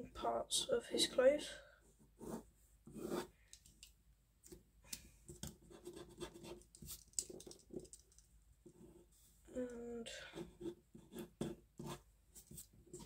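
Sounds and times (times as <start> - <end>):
pencil scratching on paper: 2.0 - 3.4, 5.5 - 7.8, 10.3 - 13.0.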